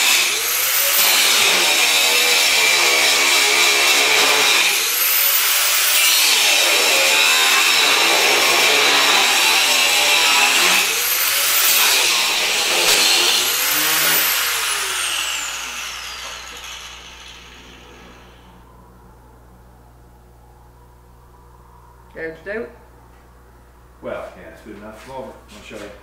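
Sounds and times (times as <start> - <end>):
angle grinder grinding metal: 0.0 - 18.6.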